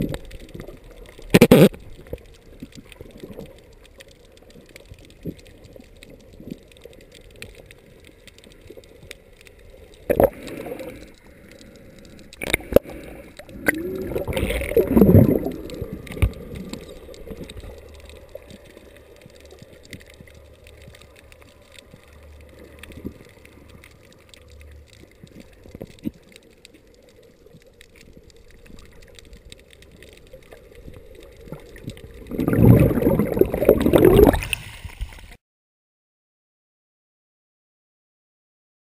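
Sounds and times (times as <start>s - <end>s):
low underwater hum: 0.0s - 35.4s
gurgling rush of water: 9.7s - 35.4s.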